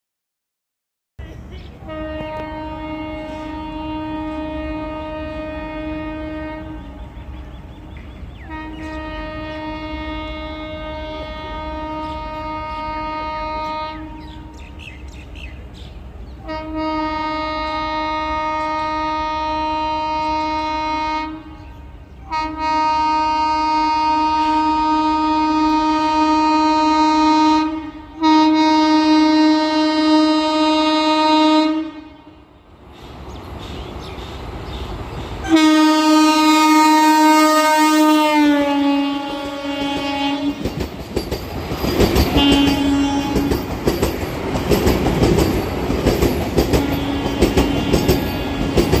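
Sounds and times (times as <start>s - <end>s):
train low rumble: 1.2s - 49.0s
train horn blasts: 1.8s - 15.0s, 16.4s - 32.6s, 35.4s - 40.8s, 42.1s - 43.8s, 46.6s - 49.0s.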